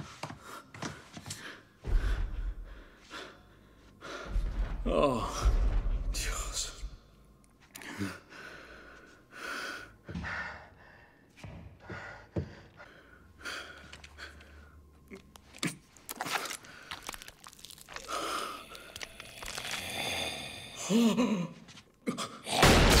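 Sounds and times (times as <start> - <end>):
man breathing heavily: 0.2 - 5.8, 7.8 - 15.0, 18.0 - 21.3.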